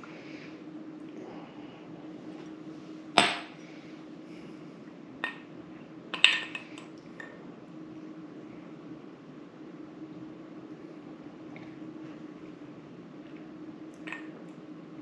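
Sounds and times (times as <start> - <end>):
glass clacking on stone countertop: 6.2 - 6.8.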